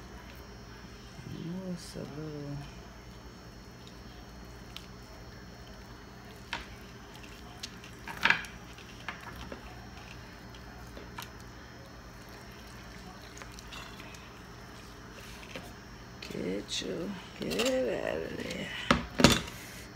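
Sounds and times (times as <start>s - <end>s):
wet squishing of meat: 3.7s - 15.8s.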